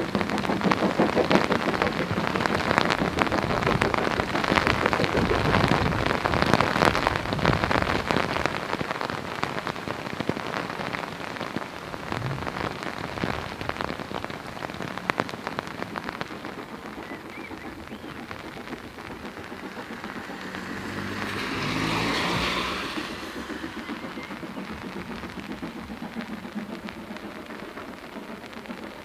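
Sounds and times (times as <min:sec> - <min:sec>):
heavy rain hiss: 0:00.0 - 0:29.0
sharp raindrop ticks: 0:00.0 - 0:29.0.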